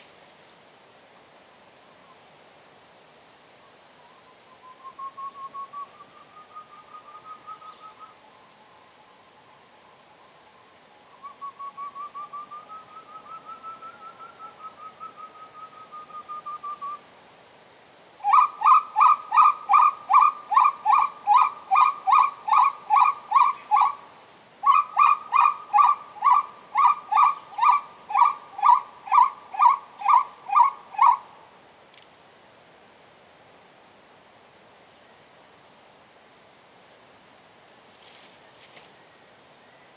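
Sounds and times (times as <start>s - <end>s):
high insect drone: 0.0s - 39.9s
wood-quail whistled call: 4.0s - 8.2s, 11.1s - 17.0s, 18.2s - 24.0s, 24.6s - 31.3s.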